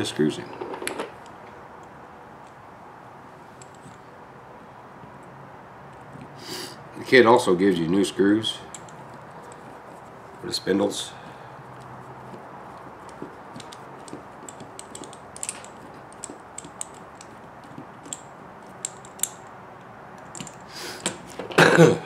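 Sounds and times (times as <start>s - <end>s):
hex driver clicking on screw: 11.8s - 21.2s.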